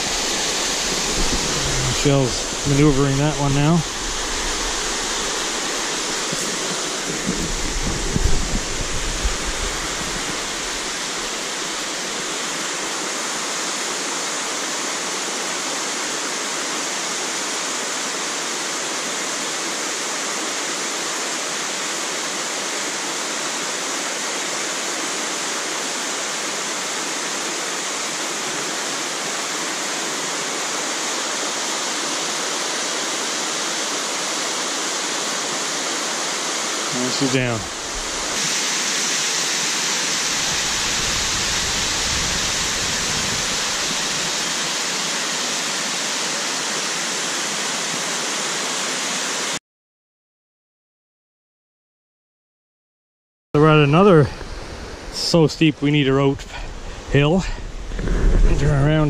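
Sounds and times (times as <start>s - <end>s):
low bumps: 0.0s - 11.4s
fast-flowing water rushing: 0.0s - 49.6s.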